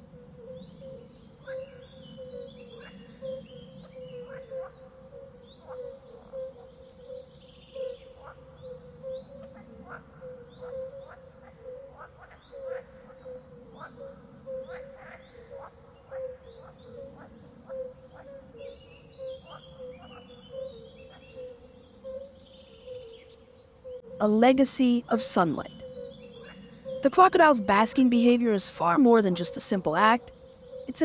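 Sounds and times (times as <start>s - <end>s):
birds chirping and calling: 5.6s - 31.0s.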